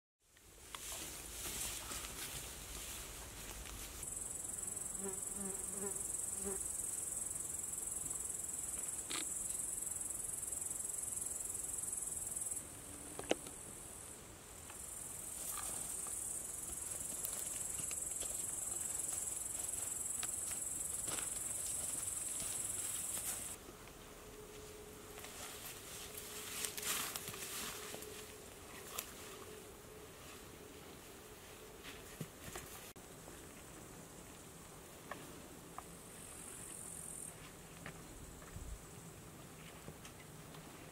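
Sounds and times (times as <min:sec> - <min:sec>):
insects chirring: 0:03.5 - 0:23.6, 0:35.8 - 0:39.1.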